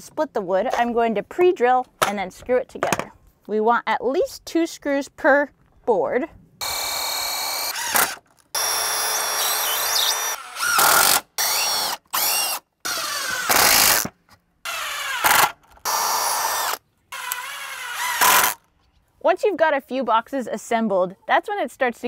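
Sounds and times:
cordless drill driving screws: 6.6s - 14.1s, 14.7s - 18.6s.

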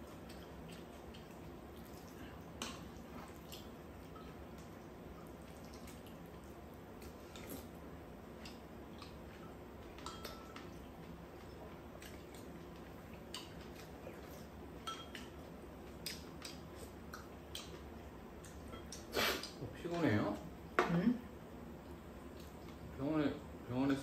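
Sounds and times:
utensils clinking against bowls: 9.3s - 10.7s, 14.8s - 15.3s.

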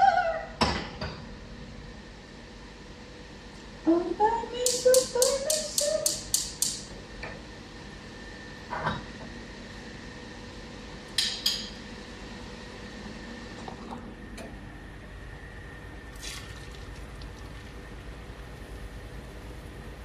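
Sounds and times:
background hum: 0.0s - 20.0s.

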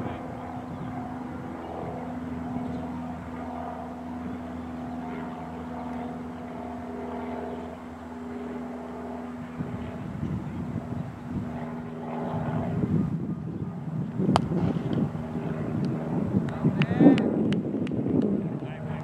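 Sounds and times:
engine drone: 0.0s - 19.0s.

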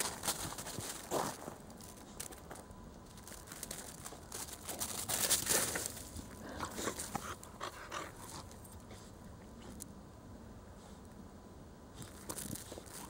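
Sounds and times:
puppy rustling in snow: 0.0s - 7.5s, 12.0s - 13.0s.

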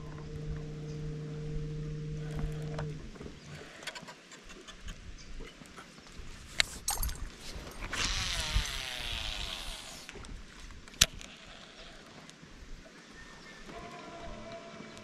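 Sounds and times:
electric trolling motor hum: 0.0s - 3.8s, 7.5s - 10.3s
sharp clicks: 7.7s - 11.3s.

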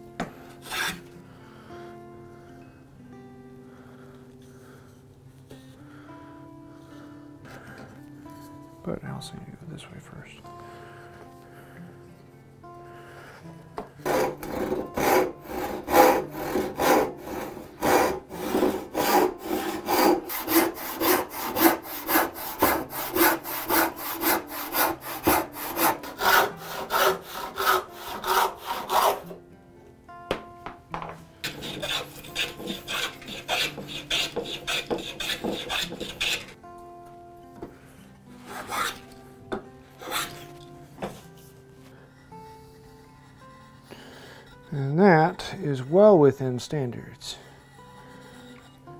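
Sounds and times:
handsaw cutting wood: 14.0s - 29.4s, 31.4s - 36.6s, 38.5s - 39.0s, 40.0s - 40.4s.

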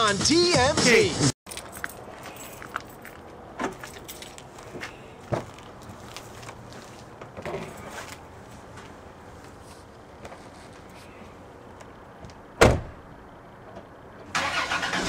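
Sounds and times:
footsteps: 1.5s - 11.4s.

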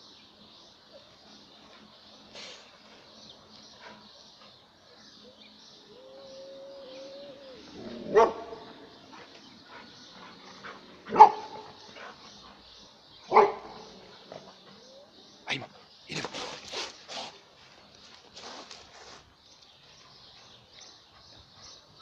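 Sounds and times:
long low cry: 5.8s - 8.1s
dog barking: 8.0s - 8.7s, 11.1s - 11.7s, 13.3s - 13.9s.

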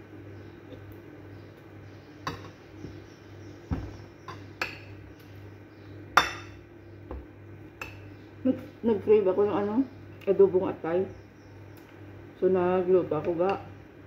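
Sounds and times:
low steady hum: 0.0s - 14.0s
dull thump: 3.7s - 4.0s.

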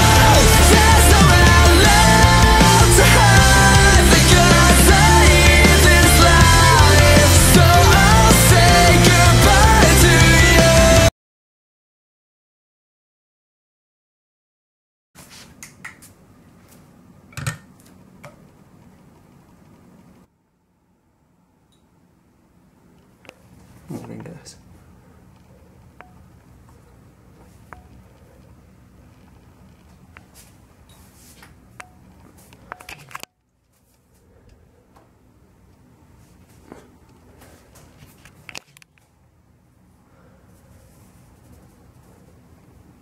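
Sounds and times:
faint room hum: 15.2s - 43.0s.

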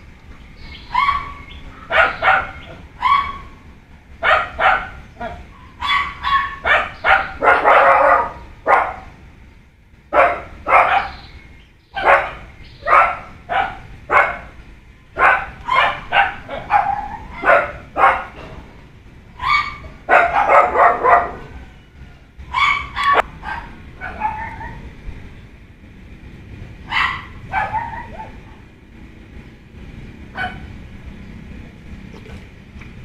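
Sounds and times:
dog barking: 0.9s - 3.5s, 4.2s - 9.1s, 10.1s - 11.2s, 12.0s - 14.5s, 15.2s - 18.4s, 19.4s - 21.6s, 22.5s - 24.8s, 26.9s - 28.6s, 30.4s - 30.7s.

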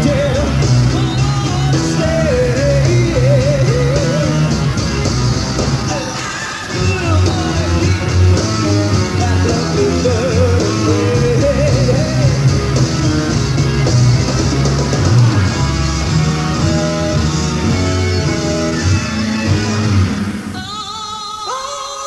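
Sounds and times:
person singing: 0.0s - 4.6s, 5.8s - 12.7s, 20.5s - 22.0s
bass: 0.0s - 20.6s
drum kit: 0.0s - 21.6s
electric guitar: 0.0s - 22.0s.

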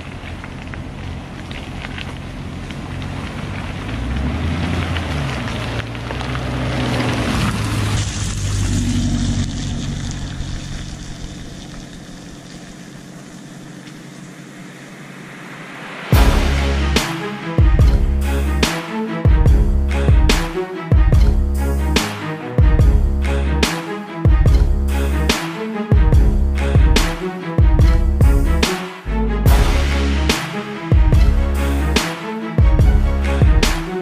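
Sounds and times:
engine running at low speed: 0.0s - 15.3s
loud music: 15.7s - 34.0s.

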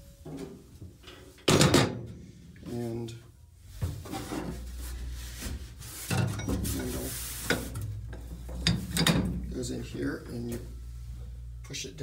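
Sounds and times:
metal knocks and scraping: 3.8s - 10.7s.

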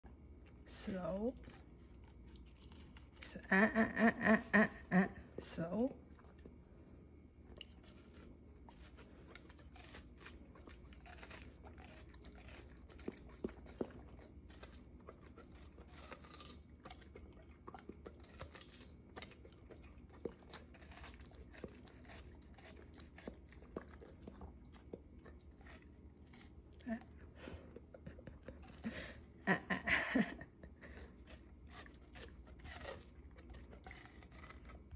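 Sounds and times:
dog chewing watermelon: 0.0s - 34.9s.

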